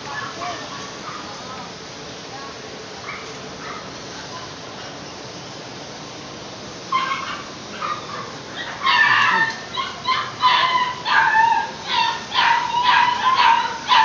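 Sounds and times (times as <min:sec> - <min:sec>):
steady background noise: 0:00.0 - 0:14.0
dog barking high-pitched: 0:06.9 - 0:14.0.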